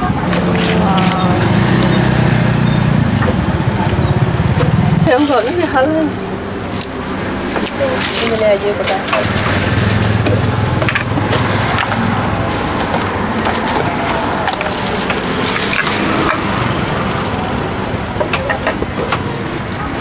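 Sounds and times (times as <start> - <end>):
traffic hum: 0.0 - 20.0
utensils clattering: 0.1 - 3.4, 4.6 - 20.0
wooden mortar and pestle: 4.5 - 20.0.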